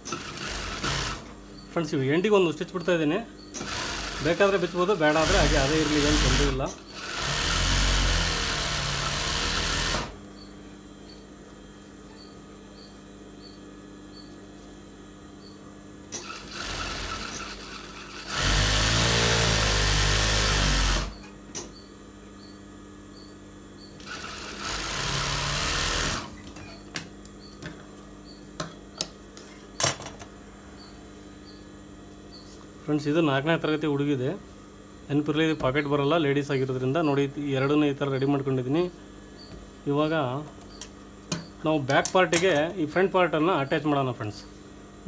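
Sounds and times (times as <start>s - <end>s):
sewing machine stitching: 0.0s - 1.2s, 3.6s - 10.2s, 16.2s - 21.2s, 24.0s - 26.3s
motor hum: 3.5s - 14.4s, 15.0s - 28.7s.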